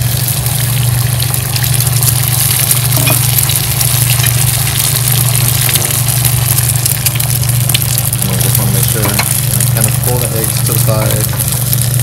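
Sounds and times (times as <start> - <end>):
eggs sizzling in a pan: 0.0 - 12.0
steady low hum: 0.0 - 12.0.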